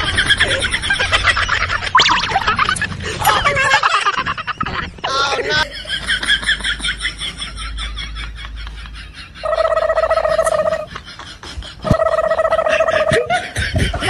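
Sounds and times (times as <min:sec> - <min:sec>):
high chattering sounds: 0:01.9 - 0:05.6, 0:09.4 - 0:10.9.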